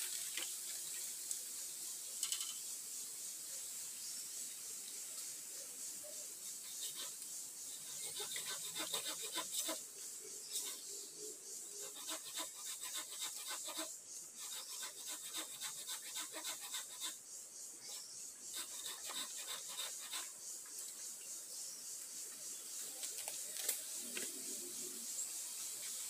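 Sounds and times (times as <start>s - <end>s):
hand saw cutting bamboo: 7.9s - 9.8s, 11.8s - 17.2s, 18.0s - 20.3s.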